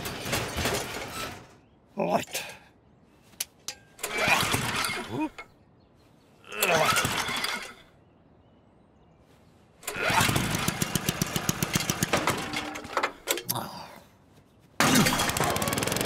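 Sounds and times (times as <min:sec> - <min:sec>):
lawn mower engine chugging: 0:10.3 - 0:13.1, 0:14.8 - 0:16.0.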